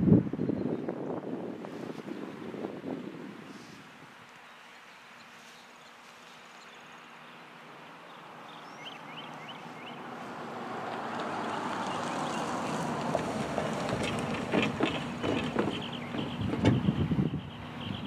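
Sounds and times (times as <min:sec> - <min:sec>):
bird chirps: 0:04.4 - 0:10.1, 0:14.9 - 0:18.0
pickup truck approaching: 0:07.3 - 0:18.0.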